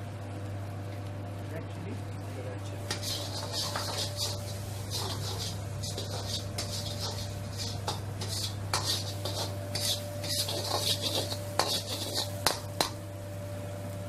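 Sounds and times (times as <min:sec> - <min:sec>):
steady low hum: 0:00.0 - 0:14.0
oil sizzling: 0:02.2 - 0:14.0
ladle scraping a wok: 0:02.9 - 0:13.0.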